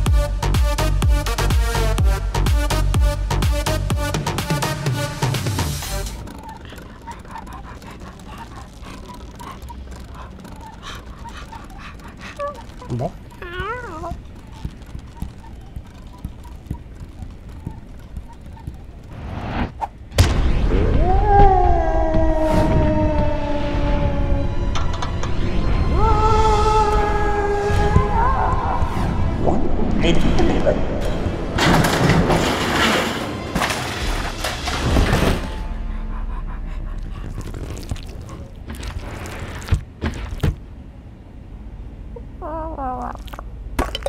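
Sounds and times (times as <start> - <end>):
music: 0.0 - 6.3, 23.6 - 27.1
light irregular tapping: 6.2 - 19.2
cartoon crashing and clattering: 31.6 - 35.6.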